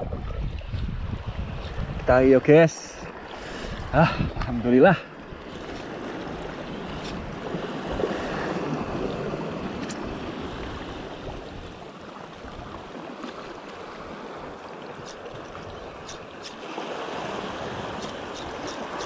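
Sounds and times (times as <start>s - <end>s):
wind on microphone: 0.0s - 4.7s, 5.4s - 12.8s
sea waves on rocky shore: 1.2s - 19.0s.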